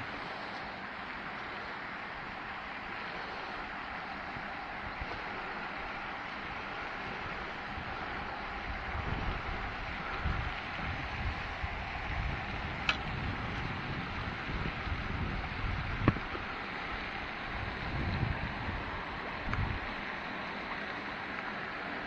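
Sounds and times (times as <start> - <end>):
outdoor hiss: 0.0 - 22.0
wind buffeting microphone: 3.6 - 20.4.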